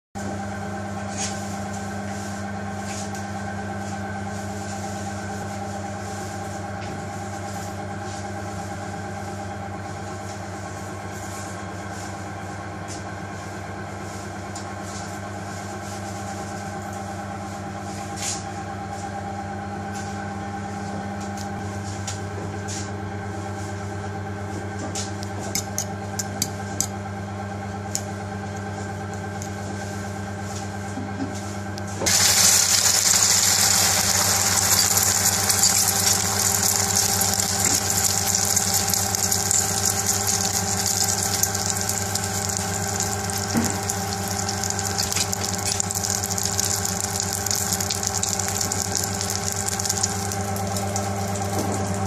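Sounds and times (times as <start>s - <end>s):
machine hum with high whine: 0.2s - 52.0s.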